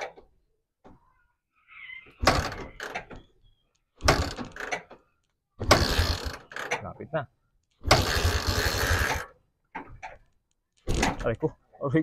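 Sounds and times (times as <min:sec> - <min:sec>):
engine turning over: 0:07.8 - 0:09.3.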